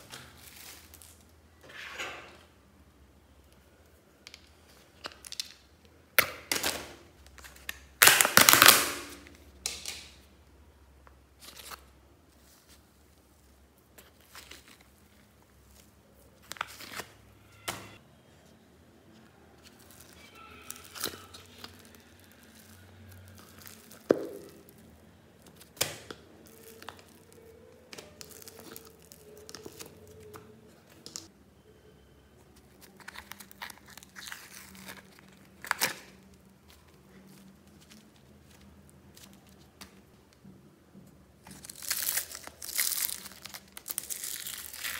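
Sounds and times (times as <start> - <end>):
plastic crinkling: 0.0 - 1.3, 11.4 - 17.2, 19.1 - 31.3, 32.5 - 40.2, 41.4 - 44.9.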